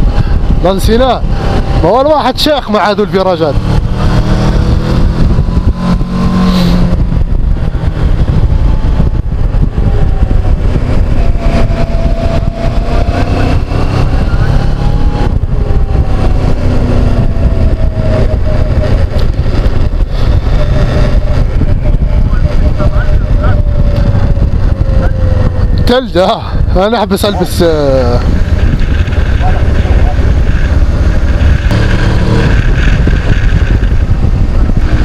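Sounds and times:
motorcycle engine running: 0.0 - 35.0
wind rushing on microphone: 0.0 - 35.0.

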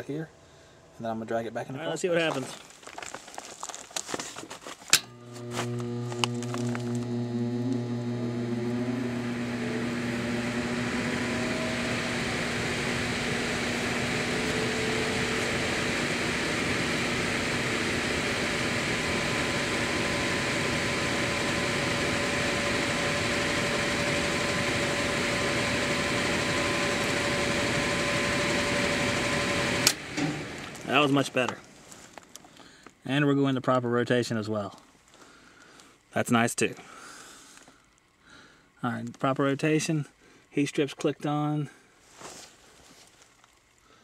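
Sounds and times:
blower motor whine: 4.9 - 31.2
blower rushing air: 5.0 - 31.0.

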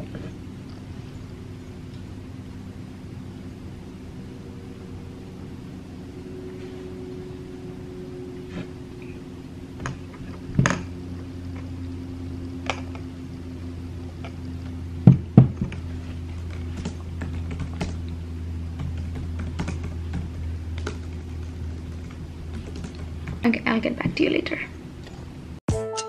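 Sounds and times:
steady low hum: 0.0 - 25.6.

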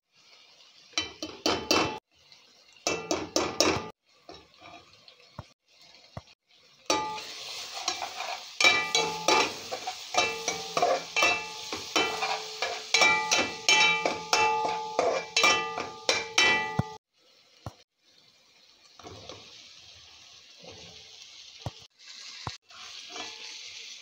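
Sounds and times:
food sizzling in oil: 0.0 - 24.0
utensil scraping ringing pan: 6.9 - 17.0, 23.0 - 23.6.

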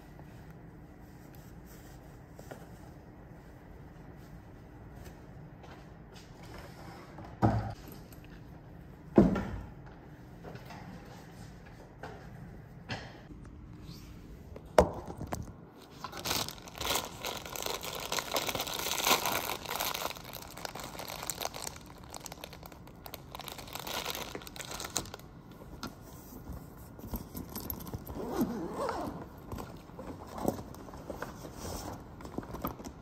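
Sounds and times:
packaging crinkling and rustling: 15.8 - 25.3.

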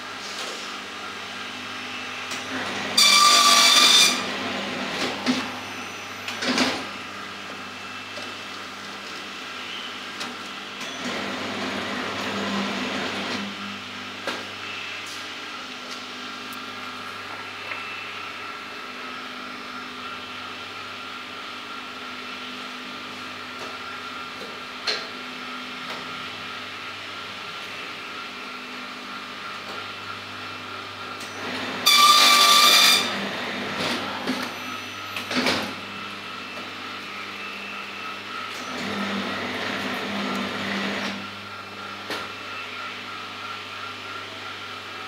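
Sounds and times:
binding machine humming: 0.8 - 20.7, 25.8 - 45.0
loud high buzzing tone: 1.5 - 4.4, 5.5 - 8.2, 14.5 - 15.7, 31.3 - 33.6.

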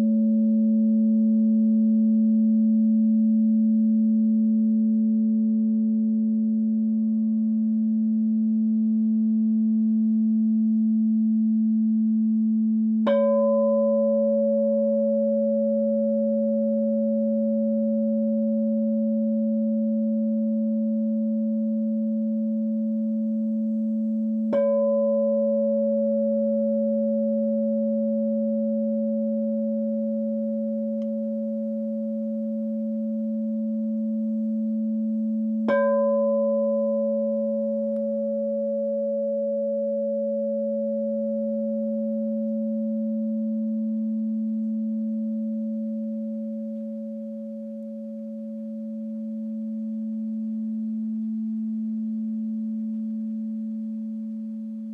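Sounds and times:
singing bowl ringing tone: 0.0 - 54.9
mallet striking bowl: 35.6 - 42.8.

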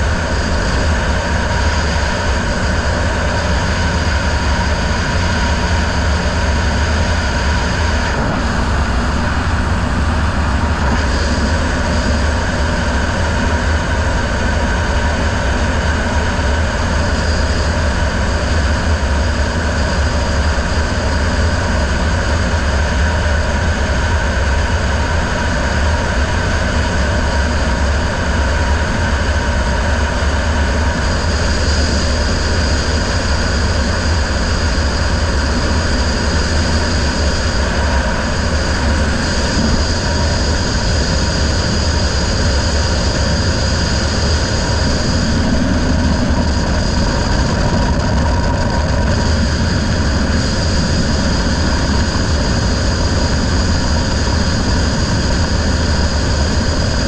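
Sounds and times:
outboard motor running: 0.0 - 57.0
wind over microphone: 0.0 - 57.0.

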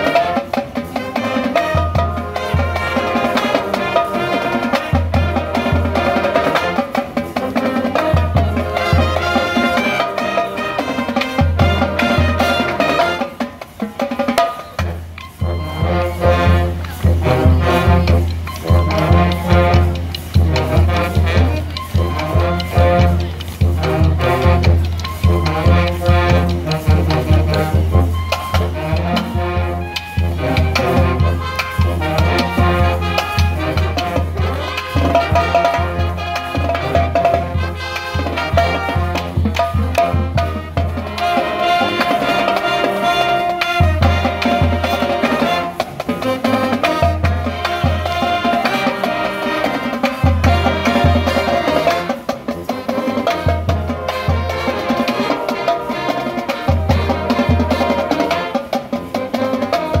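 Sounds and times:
school band playing upbeat tune: 0.0 - 60.0
snare and bass drums: 0.0 - 60.0
sousaphone bass line: 15.0 - 31.6.

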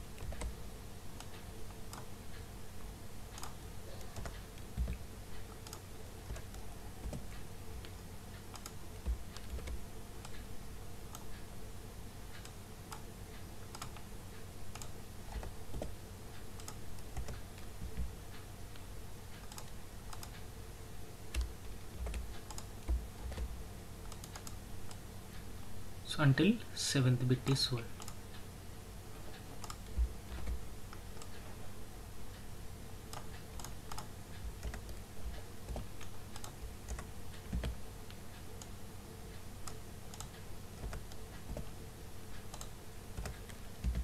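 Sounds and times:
keyboard keystrokes and clicks: 0.1 - 0.6, 3.3 - 10.5, 12.3 - 14.1, 14.7 - 18.4, 19.3 - 20.5, 21.3 - 25.0, 28.0 - 28.2, 29.3 - 31.4, 33.1 - 38.7, 39.6 - 44.0.

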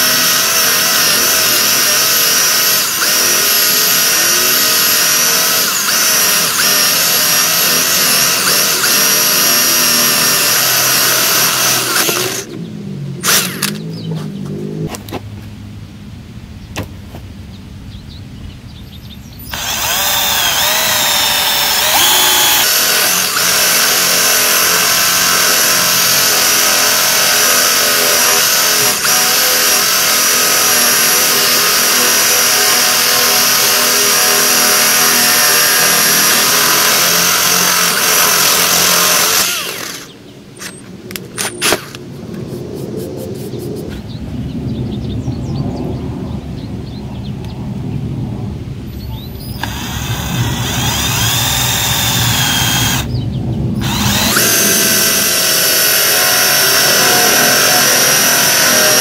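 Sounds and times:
cordless drill motor whine: 0.0 - 12.6, 13.2 - 13.8, 19.5 - 40.7, 49.5 - 53.1, 53.8 - 59.0.

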